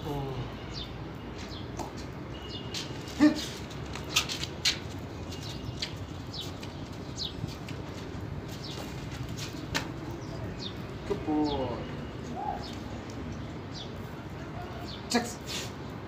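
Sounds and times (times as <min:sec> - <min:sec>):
small birds chirping: 0:00.0 - 0:16.0
steady outdoor hiss: 0:00.0 - 0:16.0
sharp slaps: 0:09.6 - 0:10.0.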